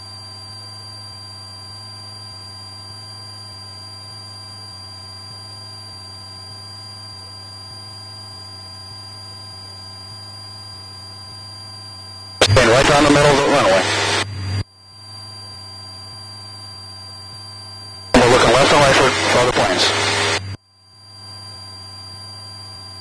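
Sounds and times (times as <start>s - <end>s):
thin high whine: 12.4s - 14.6s, 18.2s - 20.6s.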